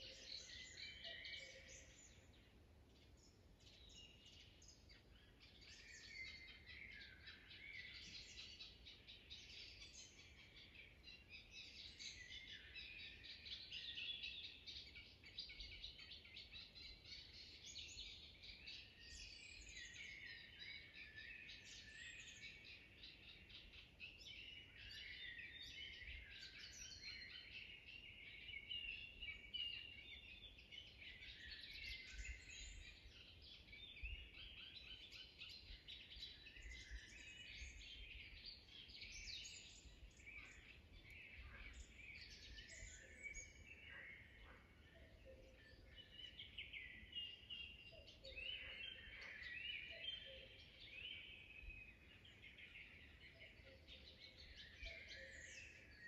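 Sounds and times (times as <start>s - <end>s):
songbirds singing: 0.0s - 56.0s.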